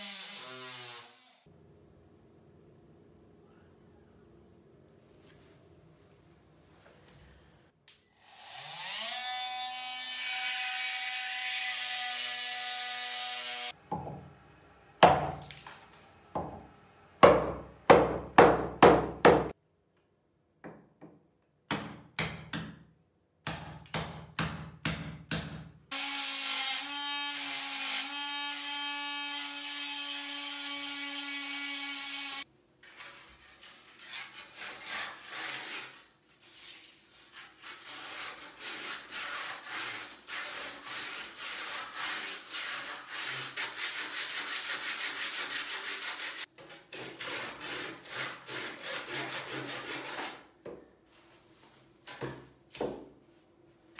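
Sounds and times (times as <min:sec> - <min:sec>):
hand saw rasping: 0:37.7 - 0:50.4.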